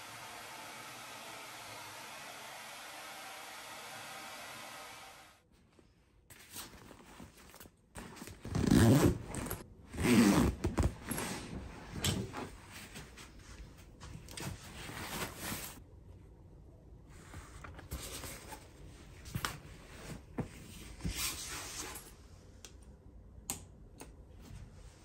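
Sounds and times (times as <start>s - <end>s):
zipper being worked: 8.2s - 11.5s.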